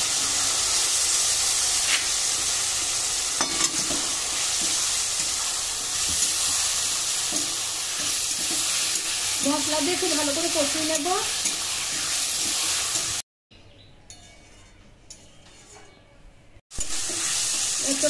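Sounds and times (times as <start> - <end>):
food sizzling in hot oil: 0.0 - 13.3, 16.7 - 18.0.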